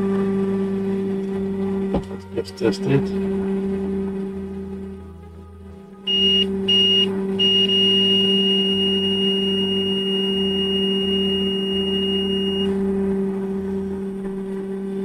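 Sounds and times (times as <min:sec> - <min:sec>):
low hum: 0:00.0 - 0:15.0
multimeter beeping: 0:06.1 - 0:12.7.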